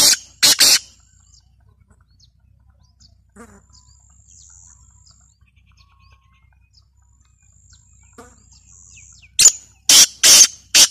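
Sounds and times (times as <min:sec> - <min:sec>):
loud bird call: 0:00.0 - 0:02.0, 0:07.8 - 0:10.9
birds chirping and whistling: 0:00.0 - 0:10.9.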